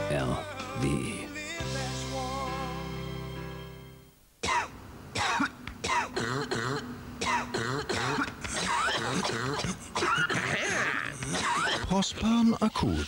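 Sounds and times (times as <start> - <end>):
music ending: 0.0 - 4.1
people coughing: 4.4 - 12.0.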